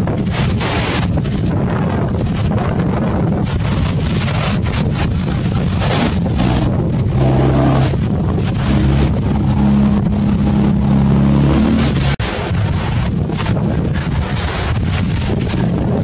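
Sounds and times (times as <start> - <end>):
wind buffeting microphone: 0.0 - 16.0
steady low drone: 5.2 - 12.4.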